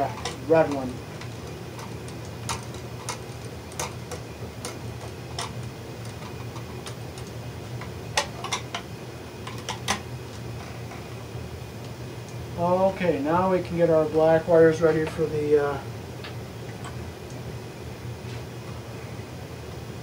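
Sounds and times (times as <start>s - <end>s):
wire nut clicking and scraping: 0.0s - 10.0s.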